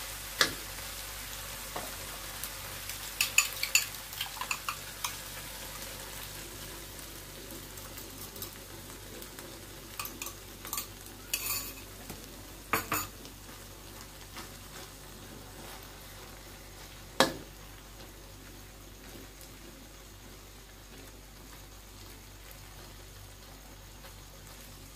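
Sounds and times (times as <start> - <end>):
egg sizzling in hot oil: 0.0 - 24.9
fork clinking against glass bowl: 10.0 - 11.8.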